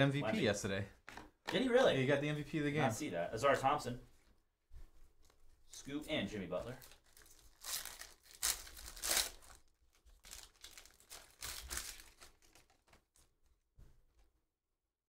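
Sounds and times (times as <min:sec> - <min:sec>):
cards rustling: 0:06.7 - 0:13.3
foil pack tearing and crinkling: 0:06.8 - 0:13.2.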